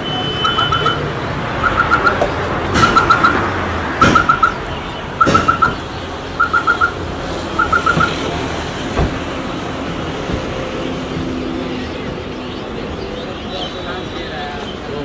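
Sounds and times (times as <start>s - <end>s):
high electronic beeps: 0.0s - 3.4s, 4.0s - 4.6s, 5.2s - 5.8s, 6.4s - 8.2s
street traffic noise: 0.0s - 15.0s.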